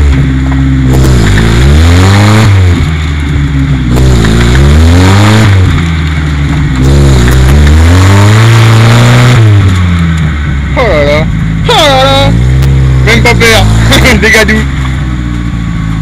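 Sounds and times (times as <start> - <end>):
engine revving hard: 0.0 - 9.8, 10.8 - 14.8.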